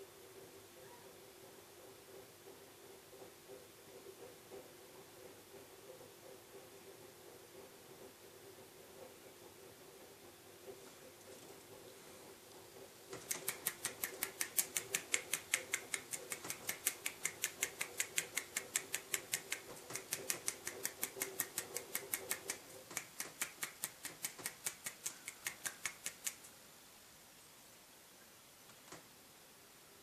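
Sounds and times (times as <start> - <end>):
fingers slapping a palm: 13.1 - 26.5.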